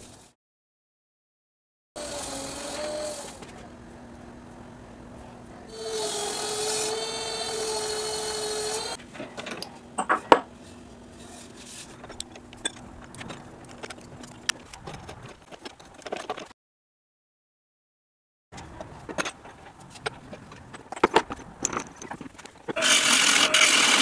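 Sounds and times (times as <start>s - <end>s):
metal clicks and knocks: 18.6s - 22.8s
steel wool hissing on spinning bowl: 22.8s - 24.0s.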